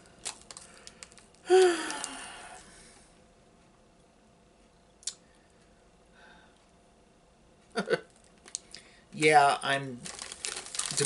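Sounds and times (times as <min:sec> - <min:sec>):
plastic snack packet crinkle: 0:00.1 - 0:02.2, 0:08.3 - 0:11.0.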